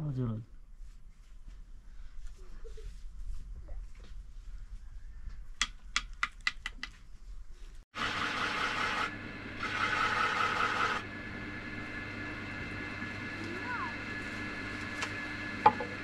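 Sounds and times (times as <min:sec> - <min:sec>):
motor-driven machine humming: 0:08.0 - 0:16.0.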